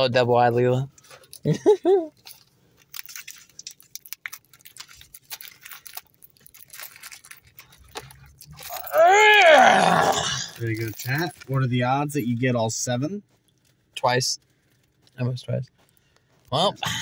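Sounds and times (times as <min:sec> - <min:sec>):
foil pack crackling: 0:02.2 - 0:09.3.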